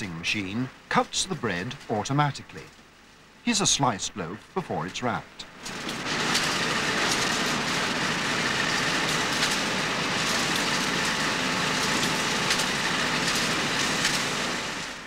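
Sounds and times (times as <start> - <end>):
bread slicing machine running: 5.5 - 15.0.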